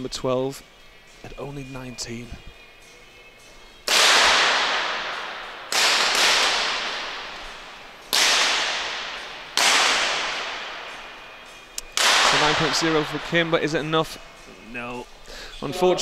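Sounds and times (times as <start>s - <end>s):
pistol shots echoing in a hall: 3.8s - 13.5s.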